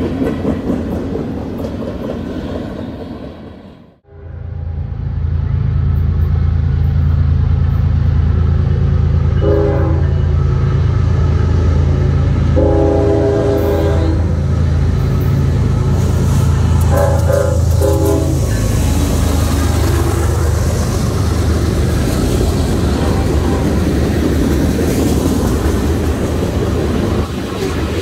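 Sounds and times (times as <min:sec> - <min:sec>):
diesel locomotive engine drone: 0:00.0 - 0:28.0
train air horn blasts: 0:09.4 - 0:10.3, 0:12.6 - 0:14.3, 0:16.8 - 0:18.5.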